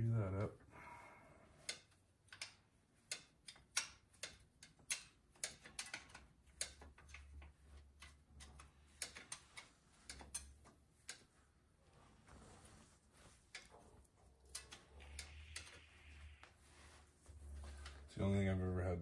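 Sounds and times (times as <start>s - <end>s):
sharp mechanical clicks: 14.4s - 16.3s.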